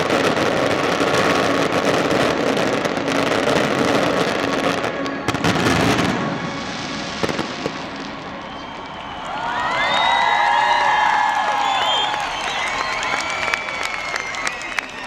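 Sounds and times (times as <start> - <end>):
fireworks crackling and banging: 0.0 - 9.2
crowd cheering: 7.2 - 15.0.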